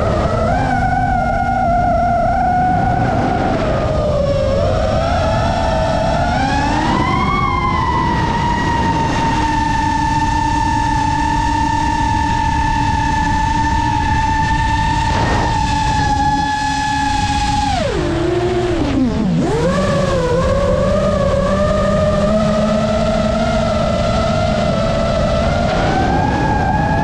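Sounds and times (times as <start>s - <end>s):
quadcopter motors whining: 0.0s - 27.0s
prop wash and wind rushing: 23.0s - 27.0s.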